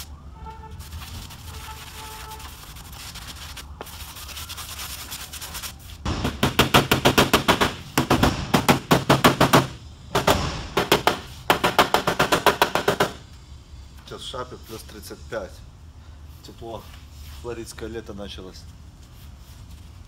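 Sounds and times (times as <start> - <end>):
rubbing on metal panel: 0.6 - 7.6
hammer tapping on sheet metal: 6.1 - 13.2.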